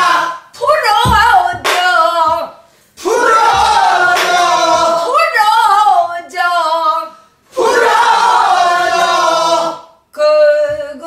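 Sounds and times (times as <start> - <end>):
woman singing: 0.5 - 2.6, 4.9 - 7.2, 10.2 - 11.0
low thump: 1.0 - 1.6.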